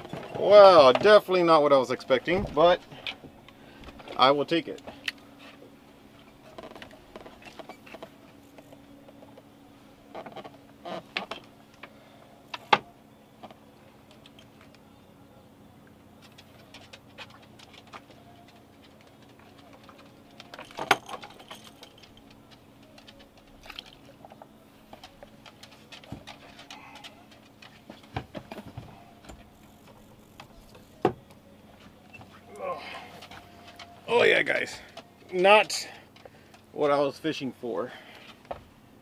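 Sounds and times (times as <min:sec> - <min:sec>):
faint steady hum: 0:00.0 - 0:39.0
fishing gear clicking and clinking: 0:16.2 - 0:28.6.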